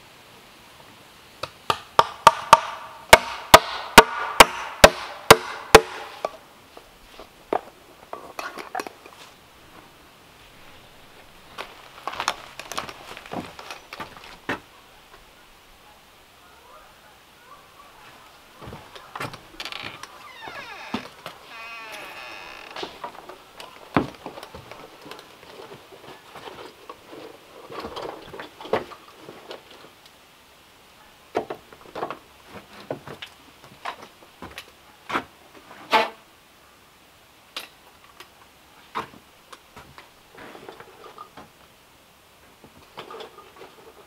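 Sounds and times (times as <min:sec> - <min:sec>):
footsteps on wooden boards: 0:11.1 - 0:14.7, 0:18.0 - 0:28.9.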